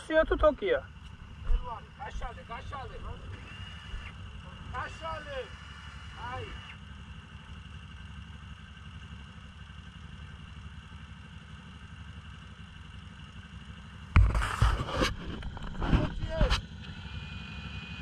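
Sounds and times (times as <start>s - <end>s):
atv engine idling: 0.0s - 18.0s.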